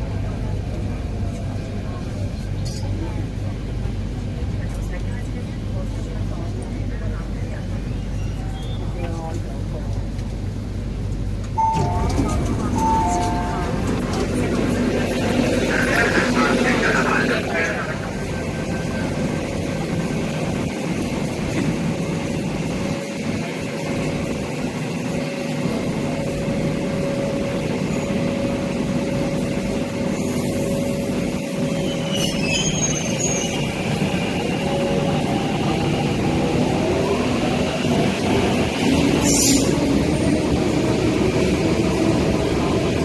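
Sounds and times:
electric train rumble and hum: 0.0 - 43.0
held tone from train equipment: 11.6 - 14.4.

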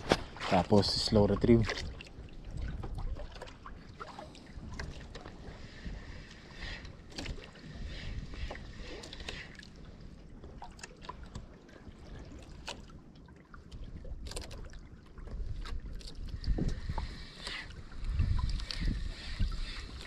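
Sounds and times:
water lapping against boat: 0.0 - 20.0
wind buffeting microphone: 13.8 - 20.0.

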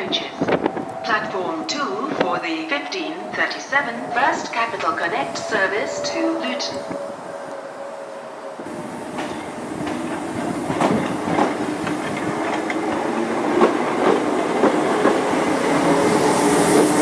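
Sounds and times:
train hum and rumble: 0.0 - 17.0
wheels clicking over rail joints: 9.1 - 15.8.

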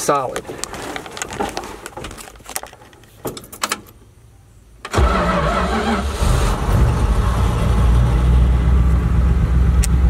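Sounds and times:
truck engine starting and running: 4.8 - 10.0.

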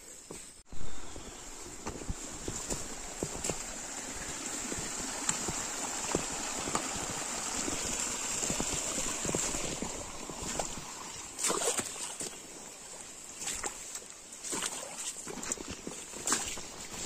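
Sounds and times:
high-pitched hiss: 0.0 - 15.0
stream running and gurgling: 0.6 - 17.0
small water splashes: 2.2 - 17.0.

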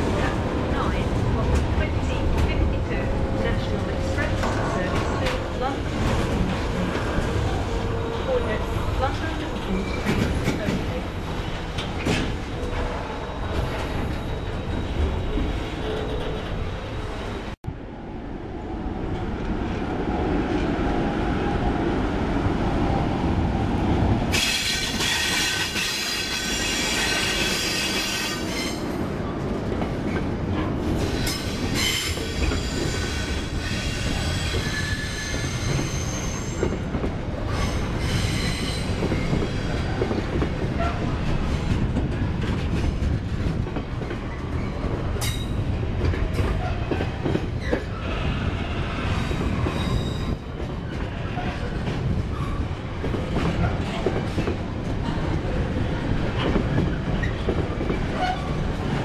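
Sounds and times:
freight train wagons rumbling: 0.0 - 17.8, 18.6 - 59.0
train wheel squeal: 24.4 - 28.8, 31.1 - 36.8, 37.5 - 39.8, 47.6 - 50.4.

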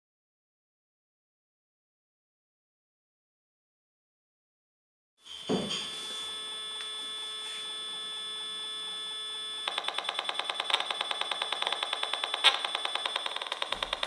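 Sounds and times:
steady buzzing tone: 5.2 - 14.0
rapid regular ticking: 9.7 - 14.0.

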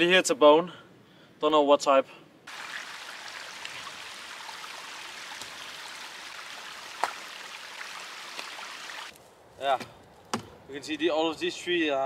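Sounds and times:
stream trickling over rocks: 2.5 - 9.1.

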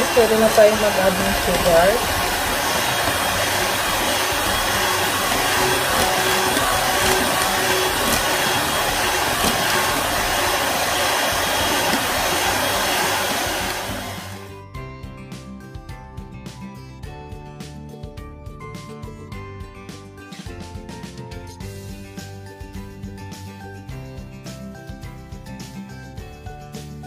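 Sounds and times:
electric hand mixer running: 0.0 - 14.6.

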